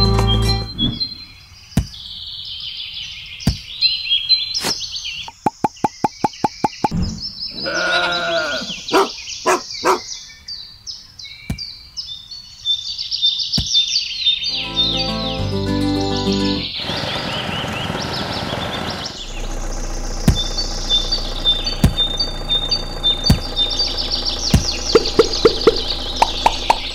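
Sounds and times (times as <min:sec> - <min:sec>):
birds chirping: 0:00.0 - 0:26.9
sheep or goat bleat: 0:07.6 - 0:08.9
quick run of clicks: 0:20.2 - 0:26.9.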